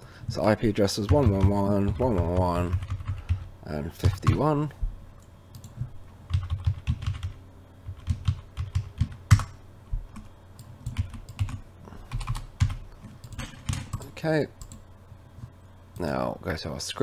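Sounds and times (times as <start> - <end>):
computer keyboard typing: 1.0 - 4.4, 6.3 - 9.6, 10.2 - 14.8.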